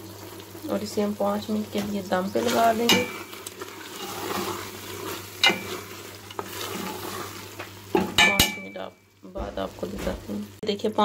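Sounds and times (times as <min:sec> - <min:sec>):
food sizzling: 0:00.0 - 0:11.0
spoon stirring in a pot: 0:01.7 - 0:09.0
spoon knocking against pot: 0:08.0 - 0:08.8.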